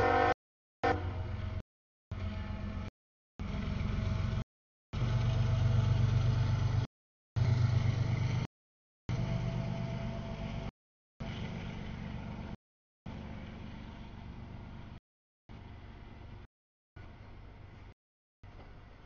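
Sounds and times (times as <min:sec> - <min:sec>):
freight train rumbling past: 0:00.0 - 0:04.4, 0:05.0 - 0:08.5.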